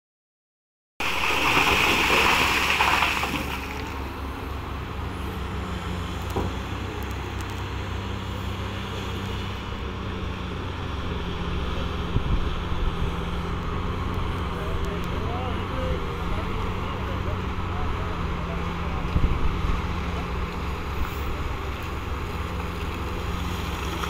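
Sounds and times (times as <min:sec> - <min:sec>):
coal clattering into truck bed: 0:01.0 - 0:03.9
heavy diesel engines humming: 0:01.0 - 0:24.0.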